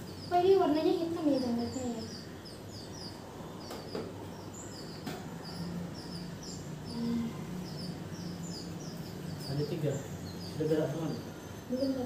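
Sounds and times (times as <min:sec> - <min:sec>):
nestling birds chirping: 0:00.0 - 0:12.0.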